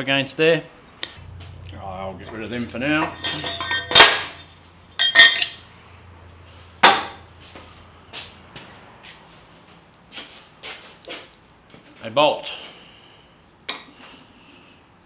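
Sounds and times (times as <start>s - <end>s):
steel pieces clanking: 2.2s - 5.7s.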